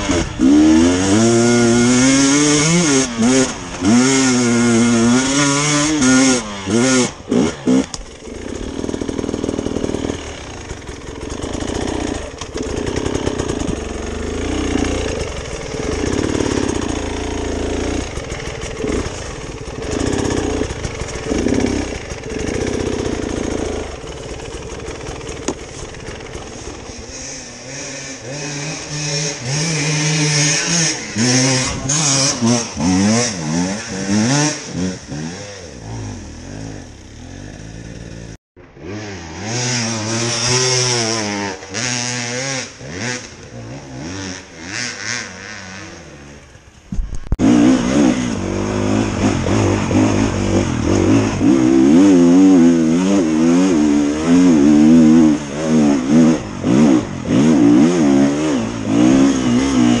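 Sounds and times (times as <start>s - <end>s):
dirt bike engines revving: 0.0s - 60.0s.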